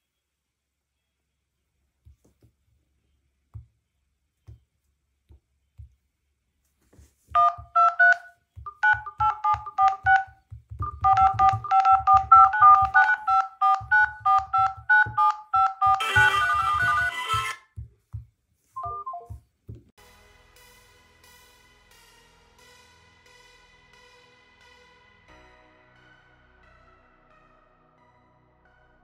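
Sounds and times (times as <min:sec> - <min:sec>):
keypad dial tone beeps: 0:07.4 - 0:17.6, 0:18.8 - 0:19.4
fuller electronic sound: 0:07.4 - 0:17.9.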